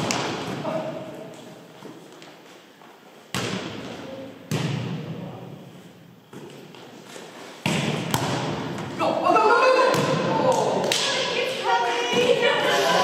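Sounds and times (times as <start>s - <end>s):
volleyball being hit: 0.0s - 0.6s, 3.3s - 5.2s, 7.6s - 8.9s, 9.8s - 11.2s.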